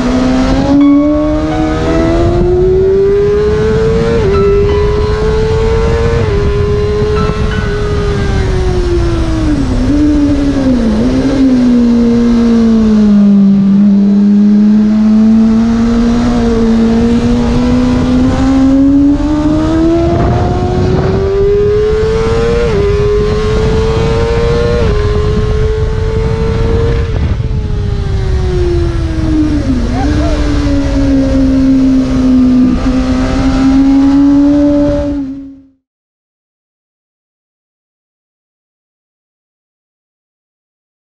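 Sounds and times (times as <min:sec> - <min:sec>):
wind rush: 0:00.0 - 0:13.5, 0:15.6 - 0:35.4
motorcycle engine revving: 0:00.0 - 0:35.8.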